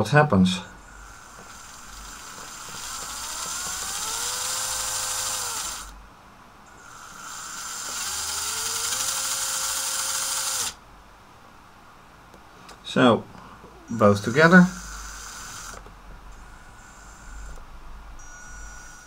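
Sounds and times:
toy motors and gears whirring: 0.8 - 6.0, 6.7 - 10.8, 13.9 - 17.6, 18.2 - 19.0.

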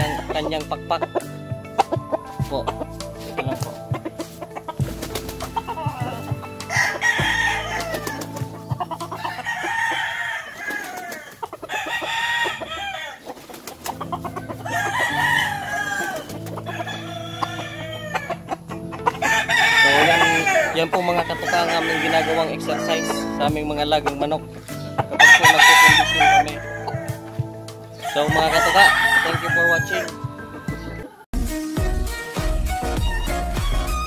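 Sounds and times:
rooster crowing: 5.6 - 13.3, 14.1 - 23.4, 25.2 - 27.1, 28.0 - 30.2.

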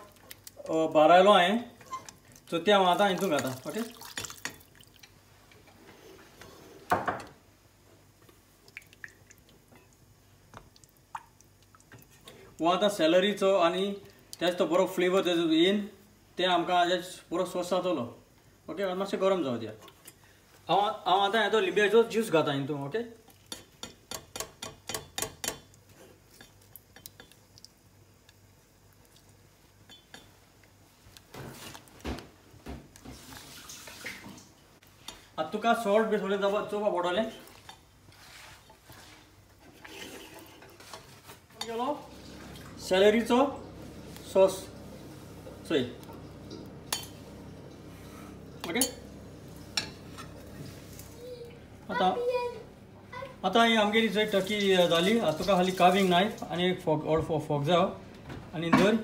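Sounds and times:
scrape or splash in a pan: 31.3 - 31.9, 33.0 - 34.5, 37.4 - 41.5, 54.3 - 56.4.

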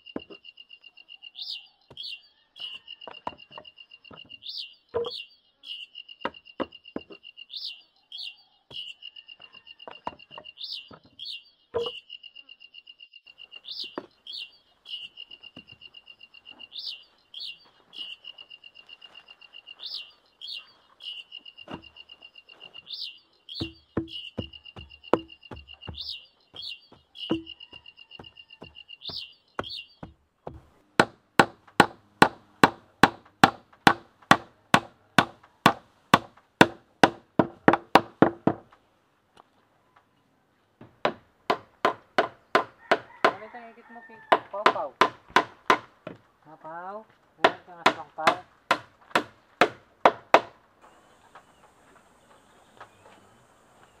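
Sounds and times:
hand tool striking bamboo post: 11.8 - 12.0, 21.7 - 21.9, 23.6 - 38.7, 40.8 - 43.4, 44.3 - 46.2, 47.4 - 50.6.

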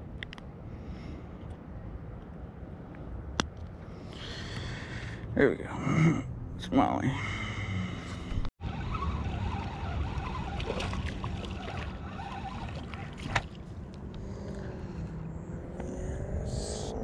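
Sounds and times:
wind rumbling on microphone: 8.3 - 17.0
fish splashing: 10.2 - 13.7.

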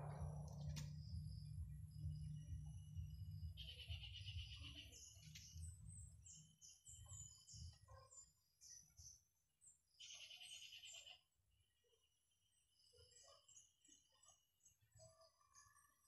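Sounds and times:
faint low rumble: 0.0 - 6.4
faint bird chirps: 0.0 - 16.0.

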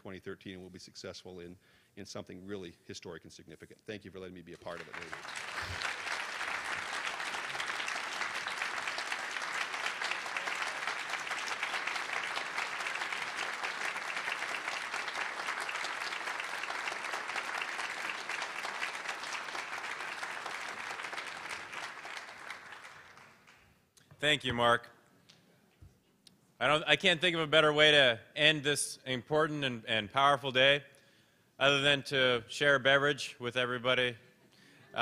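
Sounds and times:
audience applauding: 4.7 - 23.7.

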